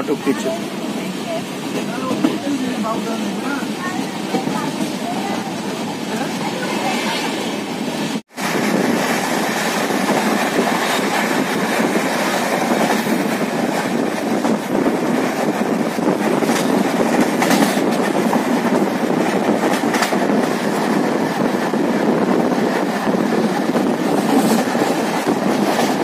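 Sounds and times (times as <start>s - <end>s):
train wheels rumbling on rails: 0.0s - 26.0s
train wheel clacks: 8.4s - 26.0s.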